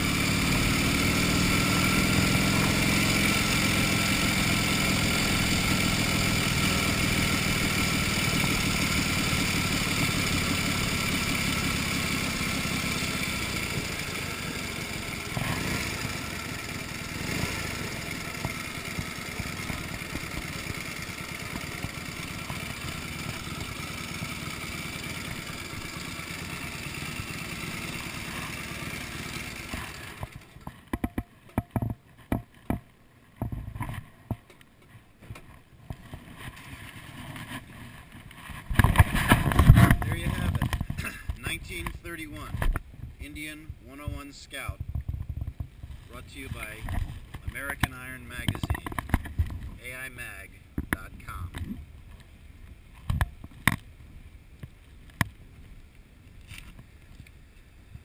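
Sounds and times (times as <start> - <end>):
motorcycle engine running: 0.0 - 32.0, 37.3 - 44.2, 44.8 - 51.8
sharp clicks and knocks: 29.7 - 36.6, 38.2 - 42.9, 46.8 - 49.7.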